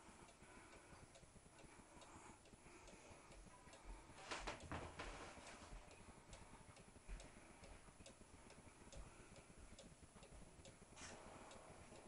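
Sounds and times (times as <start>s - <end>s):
clock ticking: 0.0s - 12.0s.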